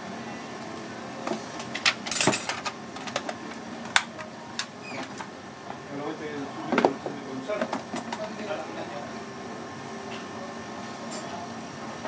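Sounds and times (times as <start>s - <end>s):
steady background hum: 0.0s - 12.0s
utensils and dishes clinking: 1.6s - 3.4s, 11.0s - 11.4s.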